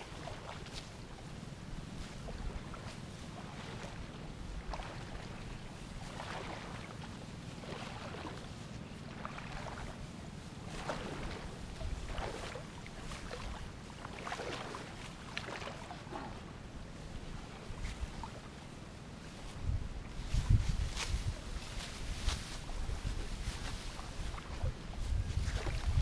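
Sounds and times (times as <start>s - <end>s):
rice plants rustling: 0.0s - 26.0s
wind buffeting microphone: 10.6s - 13.8s, 19.4s - 26.0s.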